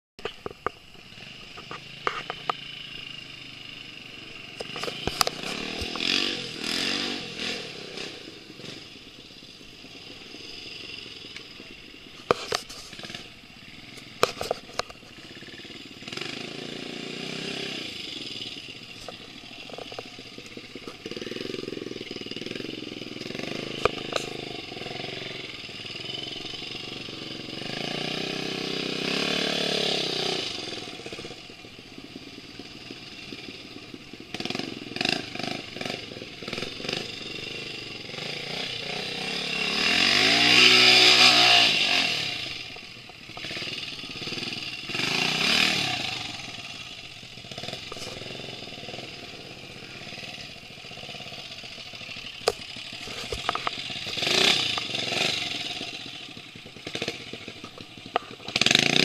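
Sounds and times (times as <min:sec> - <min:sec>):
sharp clicks and knocks: 0:00.2 - 0:00.8, 0:52.3 - 0:54.9, 0:56.9 - 0:58.8
dirt bike engine revving: 0:01.0 - 0:59.0.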